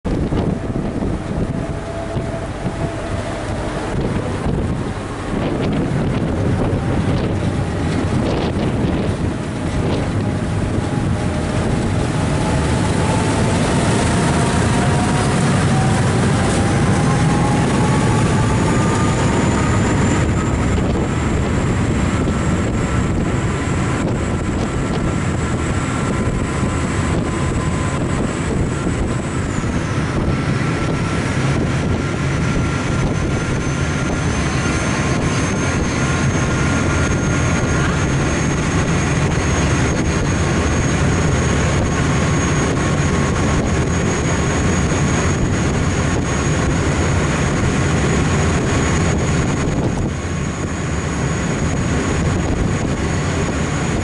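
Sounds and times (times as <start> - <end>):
boat engines running: 0.0 - 54.0
engine whine: 0.0 - 54.0
wind buffeting microphone: 0.0 - 54.0.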